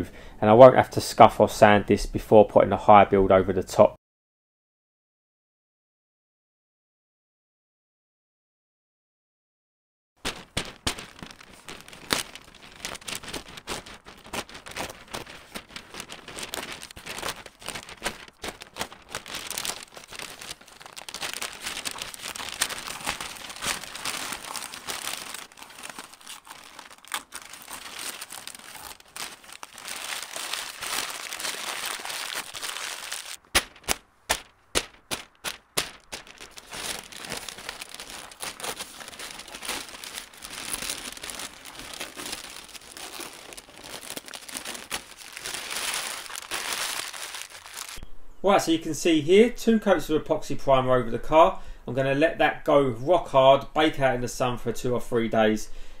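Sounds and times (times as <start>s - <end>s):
paper crinkling and rustling: 10.2s - 48.0s
sharp snaps: 33.5s - 36.2s.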